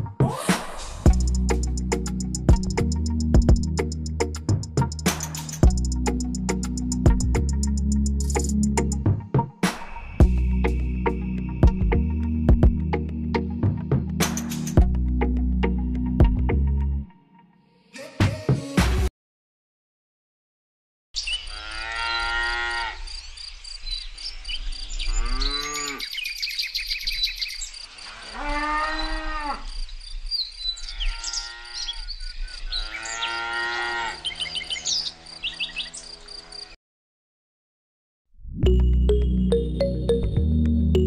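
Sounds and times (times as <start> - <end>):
cattle mooing: 21.5 - 23.0, 25.1 - 26.1, 28.3 - 29.7, 31.0 - 32.0, 32.8 - 35.1
crickets chirping: 23.0 - 32.7, 35.1 - 36.8.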